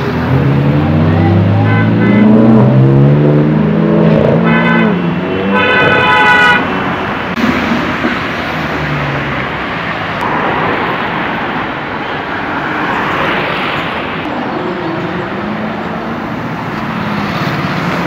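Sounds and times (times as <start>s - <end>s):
passing vehicles: 0.0s - 18.0s
car horn honking: 1.5s - 2.6s, 4.3s - 6.9s.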